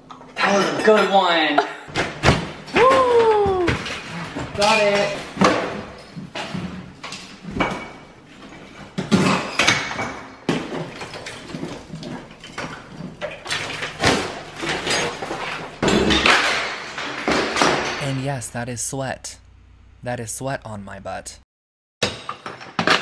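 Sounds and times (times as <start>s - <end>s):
tiles cracking off a wall: 1.9s - 7.8s, 8.9s - 18.0s, 22.0s - 23.0s.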